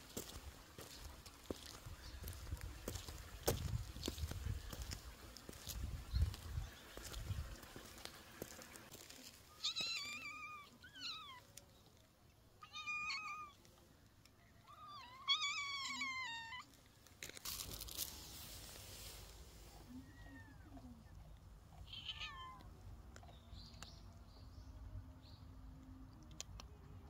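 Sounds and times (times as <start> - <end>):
cat meowing: 9.6 - 11.4, 12.6 - 13.6, 14.7 - 16.7, 21.8 - 22.6.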